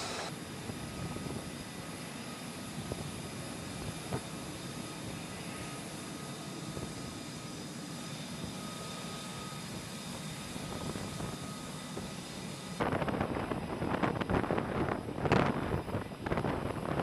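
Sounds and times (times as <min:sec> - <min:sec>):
faint high steady tones: 0:00.0 - 0:00.3
jet engine running: 0:00.0 - 0:17.0.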